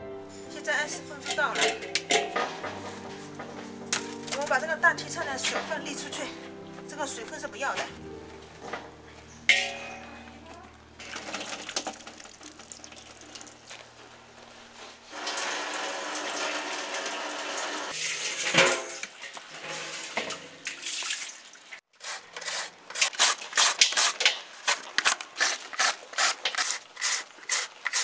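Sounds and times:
liquid trickling into metal basin: 11.0s - 14.0s, 15.1s - 21.8s
carrot rasped on shredder: 22.0s - 28.0s.

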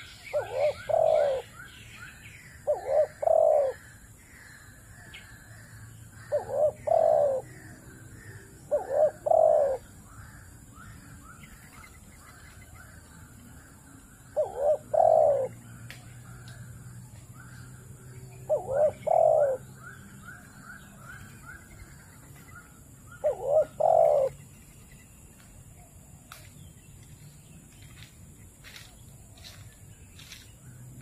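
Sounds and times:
small birds chirping: 0.0s - 31.0s
dove cooing: 0.3s - 1.6s, 2.6s - 4.0s, 5.3s - 10.0s, 14.3s - 15.7s, 18.3s - 24.4s.

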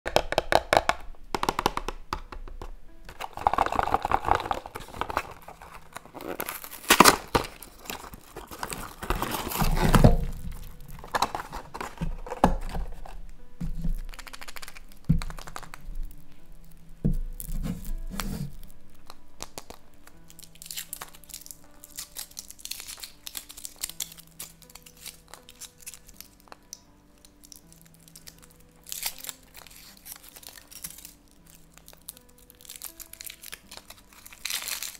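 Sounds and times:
soft background music: 0.1s - 34.9s
metal foil crinkling: 3.1s - 34.9s
cardboard box tearing: 3.2s - 13.2s.

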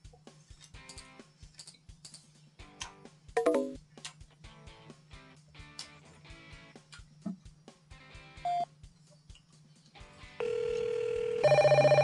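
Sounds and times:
faint music with steady beat: 0.0s - 12.0s
steady telephone-like tone: 10.4s - 12.0s
trilling telephone ring: 10.4s - 12.0s.

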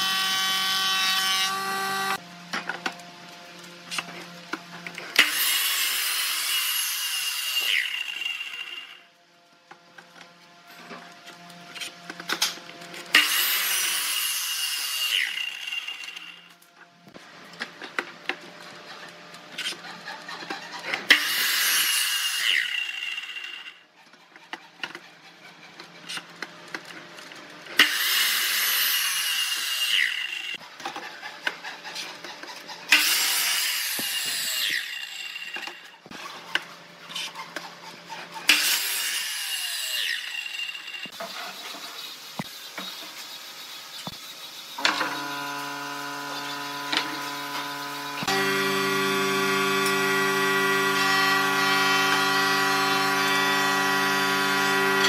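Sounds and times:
mitre saw cutting wood: 0.0s - 2.2s, 3.9s - 9.1s, 11.0s - 16.6s, 18.5s - 55.0s
saw blade whine winding down: 0.0s - 2.2s, 13.1s - 16.6s, 32.9s - 36.1s, 38.5s - 55.0s.

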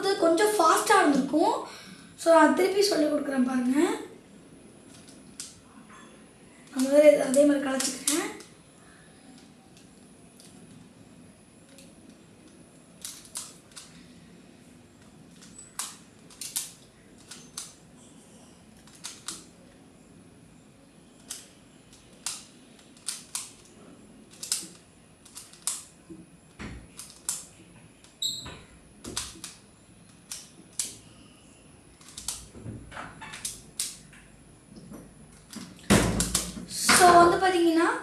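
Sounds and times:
plastic puzzle clicking: 4.9s - 5.6s, 6.6s - 8.5s, 11.7s - 14.0s, 15.0s - 17.8s, 18.8s - 19.5s, 21.2s - 23.7s, 24.3s - 25.9s, 26.9s - 28.2s, 29.0s - 31.0s, 32.0s - 32.5s, 33.3s - 34.0s.

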